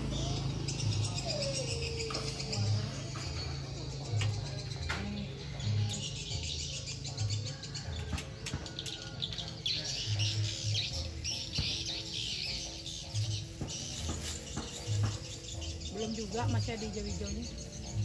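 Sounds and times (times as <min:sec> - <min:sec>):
background music with bass line: 0:02.3 - 0:18.0
high chirping crinkling sound: 0:10.9 - 0:17.9.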